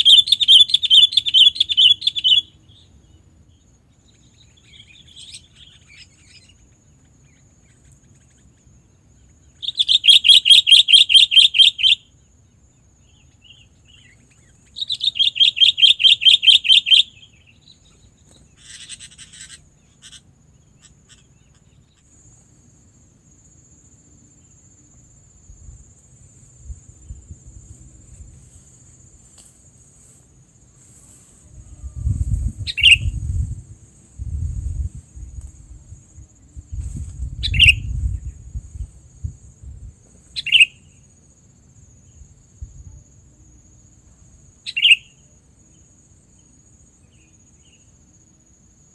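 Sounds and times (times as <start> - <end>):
bird trills: 0.0 - 3.0, 4.1 - 12.1, 13.0 - 22.1, 31.7 - 33.2, 37.4 - 38.0, 40.3 - 41.0, 44.6 - 45.2
bird chirps: 0.0 - 22.4, 30.8 - 33.5, 37.3 - 38.6, 40.2 - 41.1, 44.6 - 47.9.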